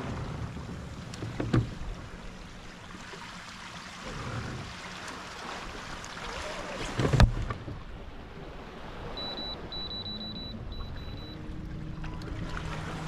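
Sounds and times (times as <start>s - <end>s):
water lapping: 0.0s - 13.0s.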